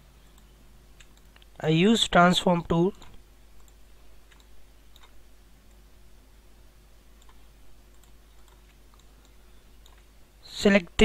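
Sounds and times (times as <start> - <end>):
low room hum: 0.0 - 11.0
computer mouse clicks: 0.2 - 1.6, 2.9 - 5.2, 7.2 - 10.1.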